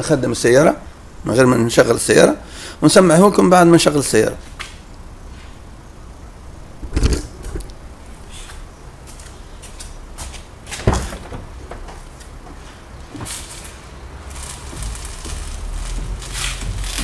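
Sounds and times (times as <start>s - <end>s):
dull suspension knocks: 10.7s - 13.4s.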